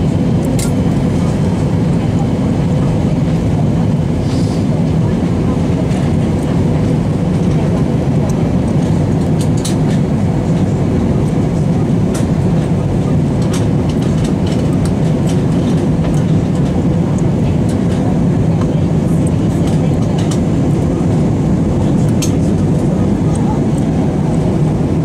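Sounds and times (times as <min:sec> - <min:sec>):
engine rumble inside plane cabin: 0:00.0 - 0:25.0
rushing air: 0:03.9 - 0:05.0.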